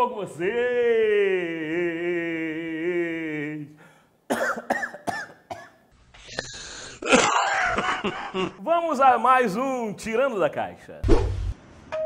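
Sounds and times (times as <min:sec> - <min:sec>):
raspy cough: 0:04.3 - 0:05.8, 0:06.4 - 0:08.5
man's voice holding a note: 0:08.6 - 0:11.0.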